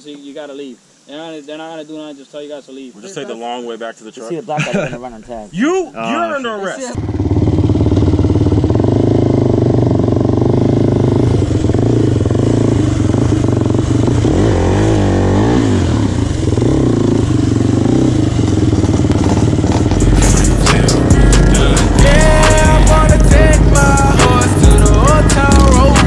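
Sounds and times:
quad engine running: 0:07.0 - 0:26.0.

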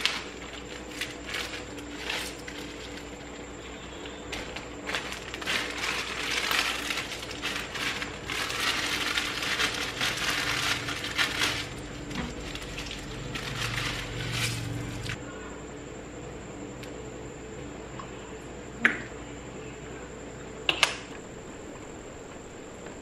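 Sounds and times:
plastic packets crinkling and tearing: 0:00.0 - 0:03.2, 0:04.2 - 0:15.2
sachet being emptied: 0:04.3 - 0:15.2.

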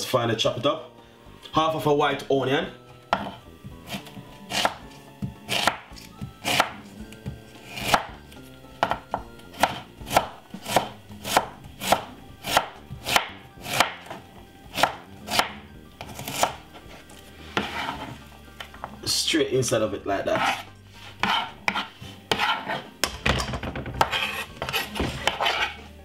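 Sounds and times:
knife chopping on wooden board: 0:03.1 - 0:16.7, 0:17.5 - 0:19.0, 0:20.4 - 0:20.6, 0:21.2 - 0:25.8.

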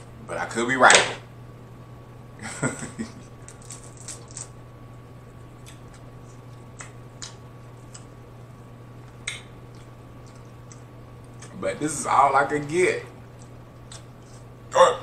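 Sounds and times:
steady low hum: 0:00.0 - 0:15.0
crab shell cracking: 0:03.4 - 0:04.6, 0:05.6 - 0:08.2, 0:13.4 - 0:14.5.

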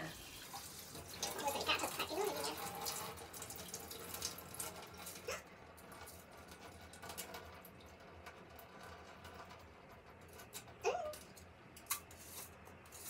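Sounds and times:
tap water running into pot: 0:00.0 - 0:13.0.

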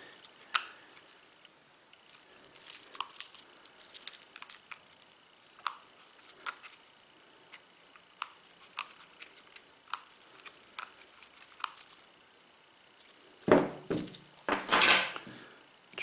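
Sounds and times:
metal clattering on table: 0:13.5 - 0:15.2.

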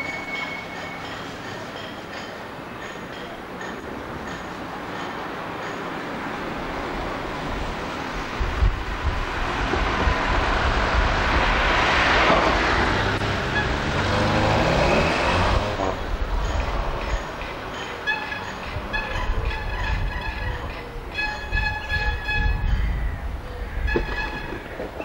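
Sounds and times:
car driving past: 0:09.5 - 0:17.0.

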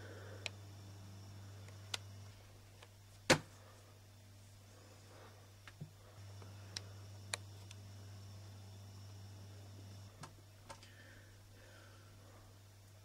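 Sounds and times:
low hum: 0:00.0 - 0:13.0
faint clicks: 0:00.4 - 0:00.6, 0:01.6 - 0:02.2, 0:06.4 - 0:07.9.

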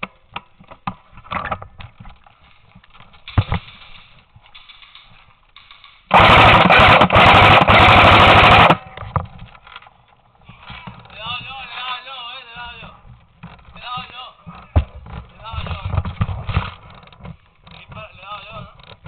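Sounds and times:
airsoft gun firing full auto: 0:04.6 - 0:08.9
faint knocks and clicks: 0:12.6 - 0:19.0.

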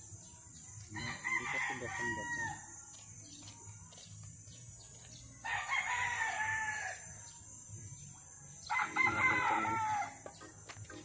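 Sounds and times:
rooster crowing: 0:01.0 - 0:02.7, 0:05.4 - 0:07.1, 0:08.7 - 0:10.2.

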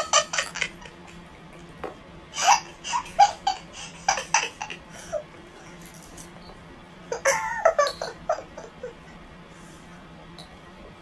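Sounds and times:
young woman laughing: 0:00.0 - 0:01.2, 0:02.4 - 0:05.3, 0:07.1 - 0:09.0
faint steady hum: 0:00.0 - 0:11.0.

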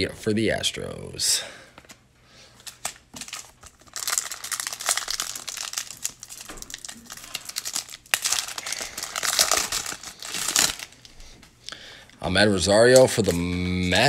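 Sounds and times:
foil wrapper crinkling and tearing: 0:02.6 - 0:11.2.

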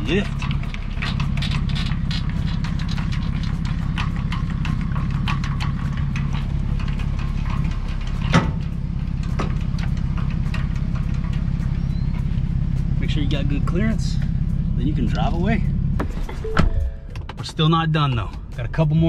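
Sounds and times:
pickup truck engine idling: 0:00.0 - 0:19.0
metal clank: 0:00.3 - 0:11.6.

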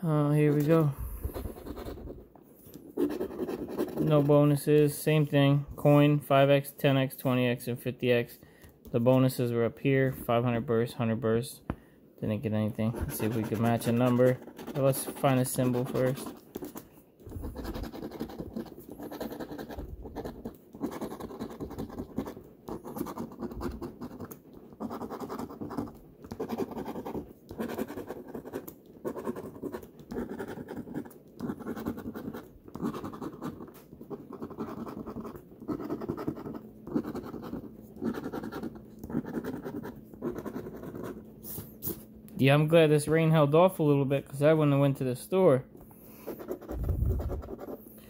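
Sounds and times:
scratching lottery ticket by hand: 0:00.1 - 0:04.9, 0:12.6 - 0:41.3, 0:46.2 - 0:47.8.

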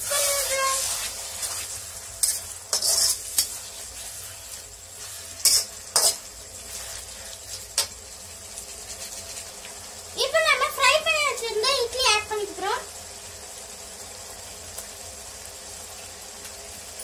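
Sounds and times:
metal spatula scraping a pan: 0:00.0 - 0:07.9
food sizzling while frying: 0:00.0 - 0:17.0.

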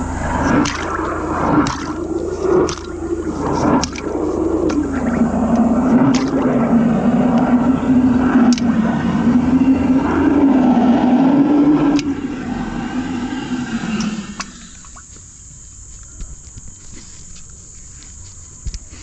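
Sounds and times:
drain jetter rushing: 0:00.0 - 0:15.0.

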